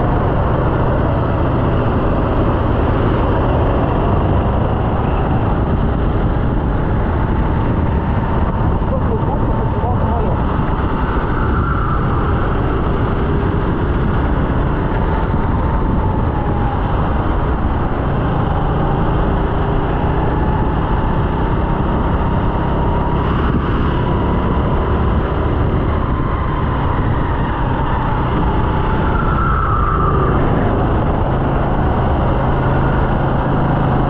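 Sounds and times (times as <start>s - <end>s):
kart engine running: 0.0s - 34.0s
rushing wind noise: 0.0s - 34.0s.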